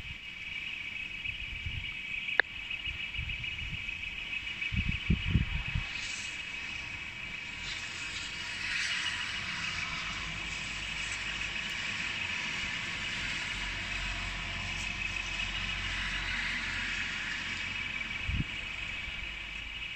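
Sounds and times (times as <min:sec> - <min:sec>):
steady rain: 0:05.8 - 0:19.9
car passing on wet road: 0:05.9 - 0:19.9.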